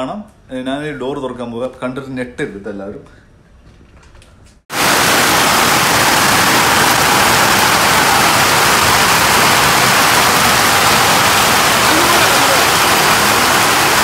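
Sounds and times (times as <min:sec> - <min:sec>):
hail and heavy rain on paving: 0:04.7 - 0:14.0.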